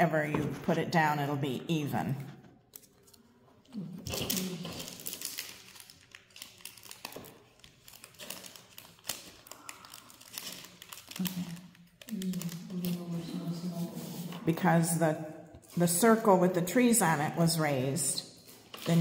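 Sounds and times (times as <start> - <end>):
paper rustling and crinkling: 2.5 - 14.6, 18.3 - 19.0.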